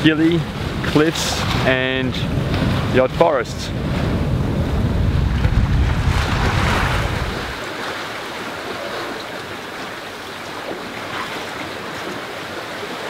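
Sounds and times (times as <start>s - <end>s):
wind buffeting microphone: 0.0s - 9.0s
water rushing past hull: 0.0s - 13.0s.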